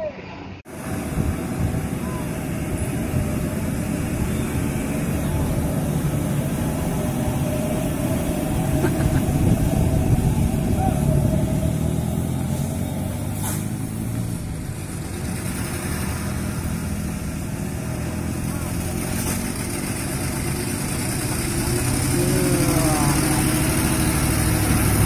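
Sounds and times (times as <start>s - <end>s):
truck diesel engine under load: 0.6s - 25.0s
brief high hiss: 13.3s - 13.8s.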